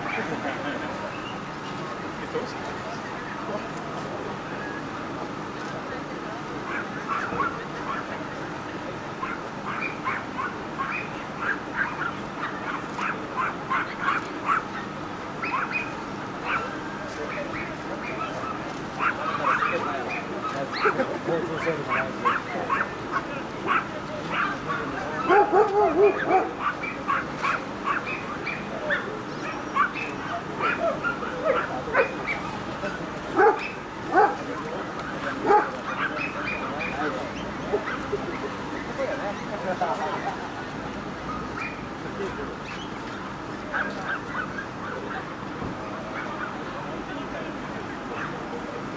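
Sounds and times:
dogs yapping: 6.7s - 8.1s, 9.2s - 34.4s, 35.0s - 39.5s, 41.3s - 41.9s, 43.7s - 45.3s.

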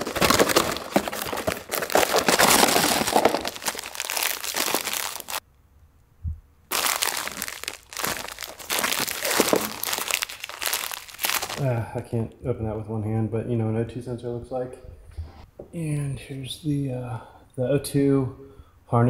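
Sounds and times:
packaging pouch crackling: 0.0s - 5.4s, 6.7s - 11.7s.

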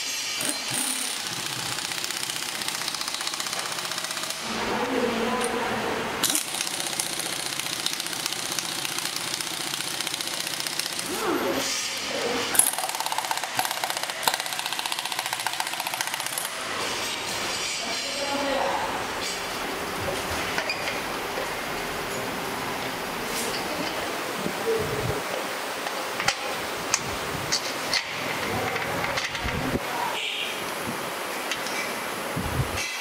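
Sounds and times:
impact wrench hammering: 0.0s - 4.6s, 6.2s - 11.2s, 12.5s - 17.2s.

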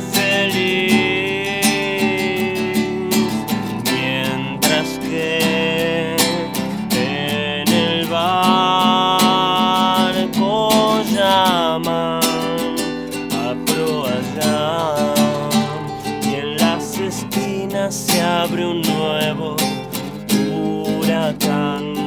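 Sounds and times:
classical guitar strumming: 0.0s - 22.0s
man singing: 0.0s - 22.0s.

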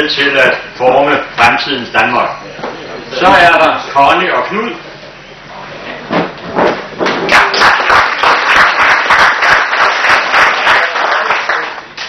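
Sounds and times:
people clapping: 7.0s - 12.0s.

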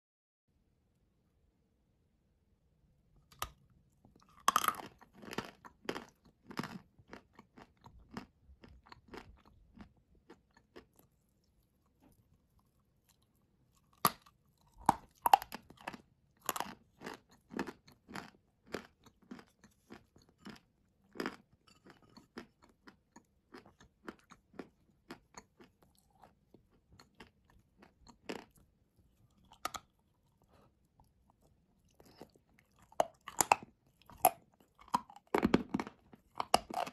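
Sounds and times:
chewing: 3.3s - 36.9s
clay crunching bites: 4.2s - 11.0s, 13.8s - 21.4s, 31.9s - 36.9s.

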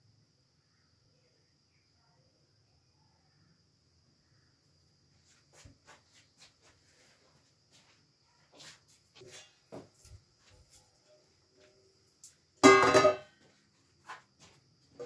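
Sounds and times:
cookware knocking on gas stove: 12.6s - 13.3s.

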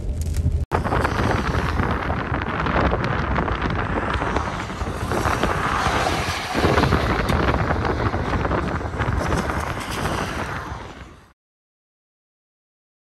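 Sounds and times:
wind rumbling on microphone: 0.0s - 11.4s.

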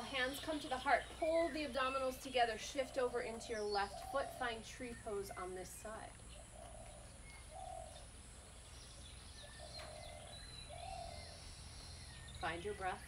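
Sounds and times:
faint birds chirping: 0.0s - 13.0s
dove cooing: 2.8s - 4.7s, 6.3s - 8.6s.

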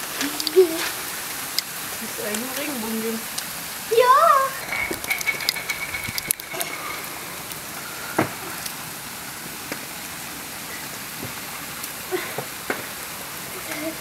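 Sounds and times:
steady rain falling: 0.0s - 14.0s
sharp ticks of drops: 4.6s - 7.7s.

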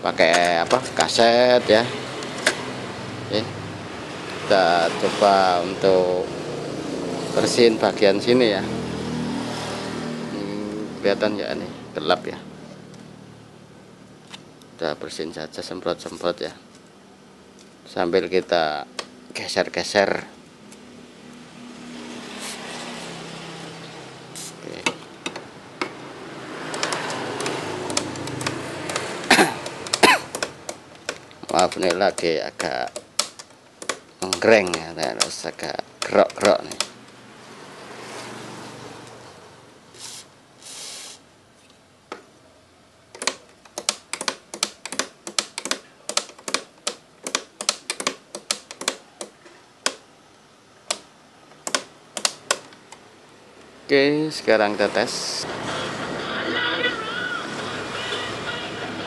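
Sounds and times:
aerosol spray hiss: 24.4s - 24.6s
switch clicking and crackling: 26.7s - 37.2s, 43.1s - 50.0s, 50.8s - 53.0s.

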